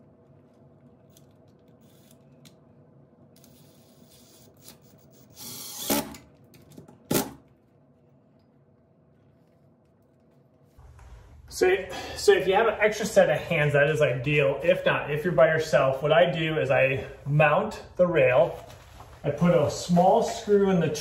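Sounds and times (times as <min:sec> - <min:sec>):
cordless driver driving screw: 0:03.4 - 0:06.2.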